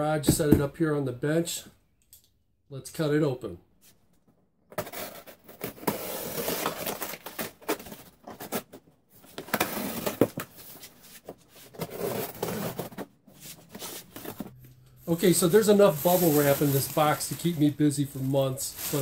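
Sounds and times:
cardboard flaps scraping and rustling: 9.3 - 14.5, 15.2 - 19.0.

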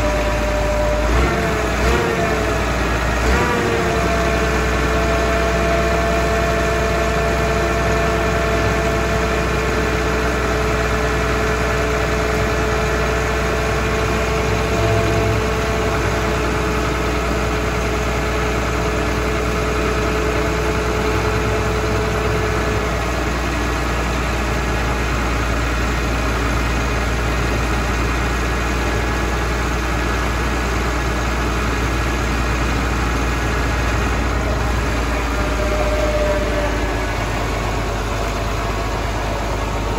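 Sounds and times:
diesel truck engine idling: 0.0 - 39.9.

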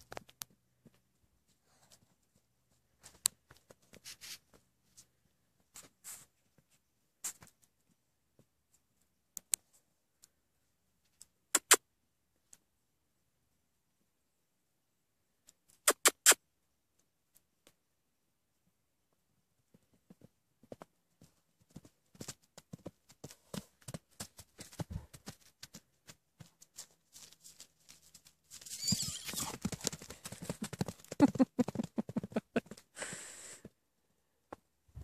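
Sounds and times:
horse hooves thudding on turf: 19.7 - 32.8.

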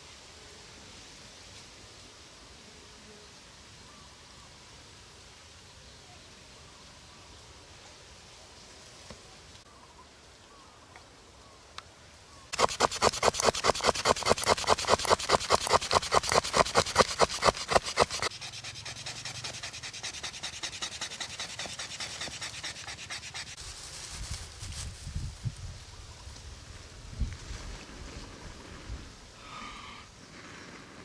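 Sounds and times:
rhythmic scraping strokes: 12.5 - 23.6.

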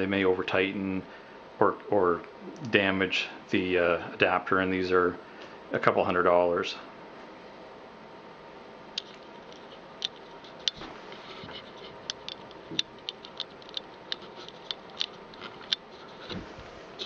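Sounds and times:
faint room hiss: 0.0 - 17.0
respirator plastic clicks: 12.0 - 16.4.

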